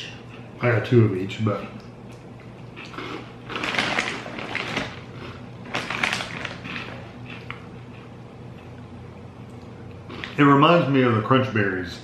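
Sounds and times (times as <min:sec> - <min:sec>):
chewing crunchy cereal: 0:01.6 - 0:10.4.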